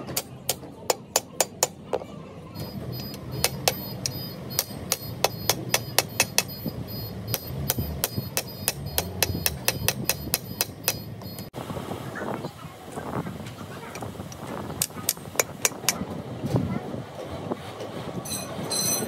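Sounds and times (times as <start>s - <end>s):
hammer striking metal: 0.0s - 11.5s.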